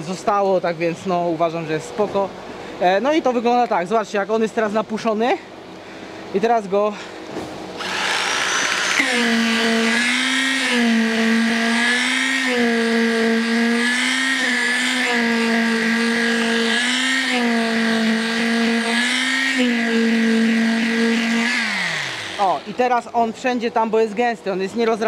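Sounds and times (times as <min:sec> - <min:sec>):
concrete vibrator whining: 0:07.7 - 0:23.4.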